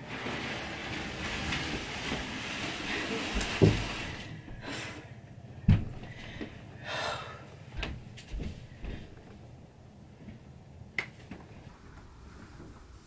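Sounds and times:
clothes rustling: 0:00.0 - 0:04.5
footsteps: 0:00.9 - 0:04.8, 0:07.7 - 0:09.5.

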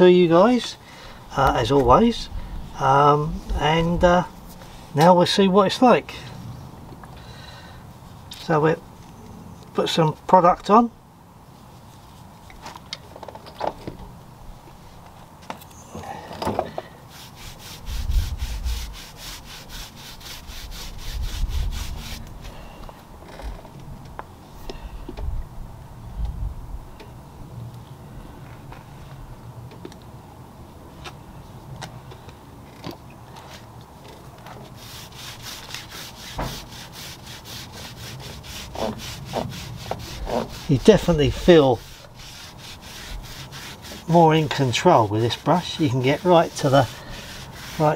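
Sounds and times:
brush scrubbing rubber tyre: 0:17.1 - 0:22.3, 0:34.6 - 0:47.9.

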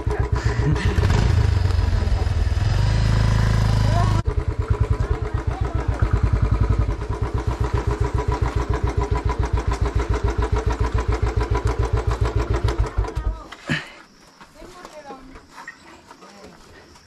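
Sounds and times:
motorcycle engine idling: 0:00.0 - 0:13.5.

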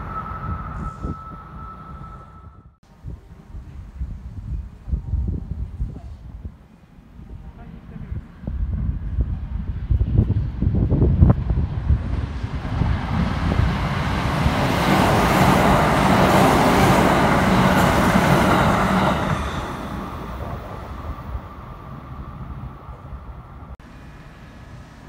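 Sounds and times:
train wheels rumbling on rails: 0:07.2 - 0:25.0.

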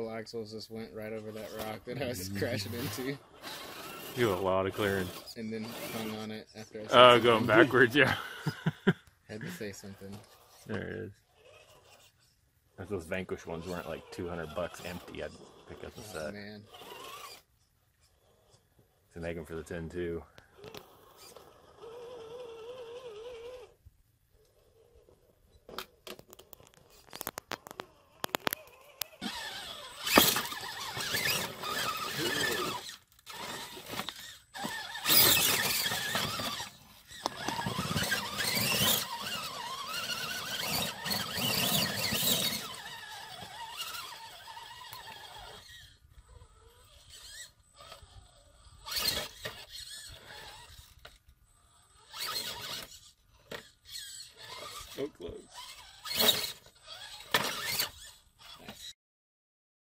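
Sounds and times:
electric motor whining: 0:27.1 - 0:58.9.

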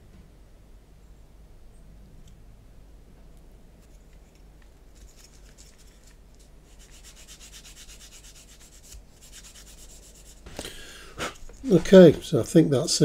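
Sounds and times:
sanding stick scratching plastic: 0:05.0 - 0:10.5.

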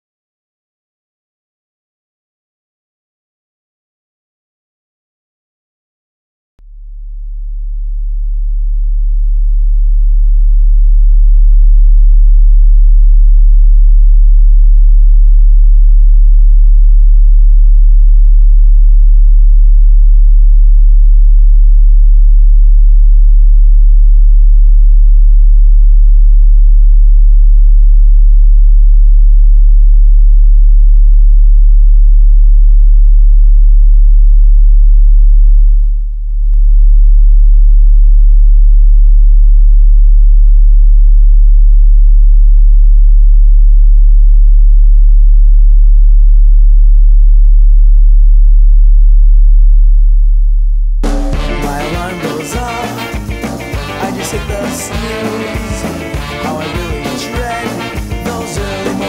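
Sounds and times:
deep drone tone: 0:06.6 - 0:59.0.

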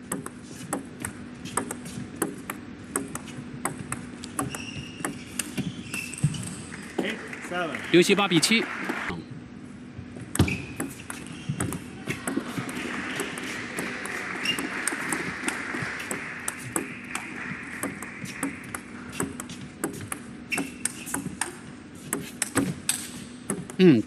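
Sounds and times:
ping pong ball clicking off paddles: 0:00.1 - 0:06.2, 0:10.4 - 0:23.8
ball bouncing on table: 0:10.4 - 0:15.2, 0:16.6 - 0:23.8.

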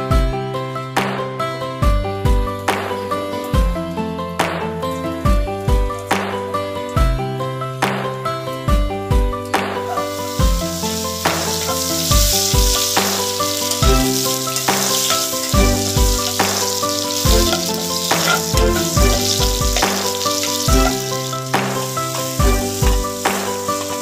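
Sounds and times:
music with drum beat: 0:08.7 - 0:24.0
food sizzling in oil: 0:09.7 - 0:24.0.

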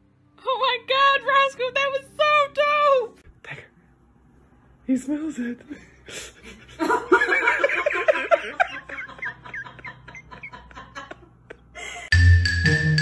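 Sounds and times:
person laughing hard: 0:06.1 - 0:12.1
marimba-like music: 0:12.1 - 0:13.0.

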